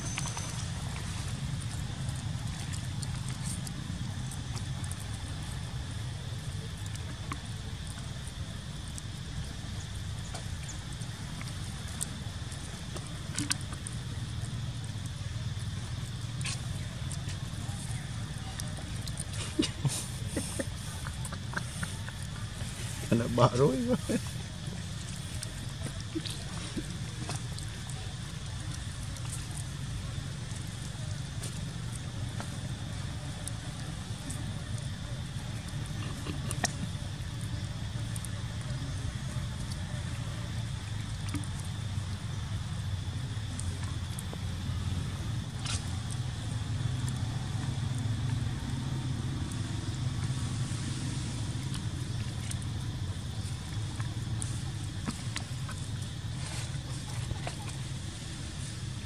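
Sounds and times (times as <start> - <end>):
faint clicks and ticks: 0.0 - 59.0
idling engine hum: 0.0 - 59.0
low rumbling background noise: 0.0 - 59.0.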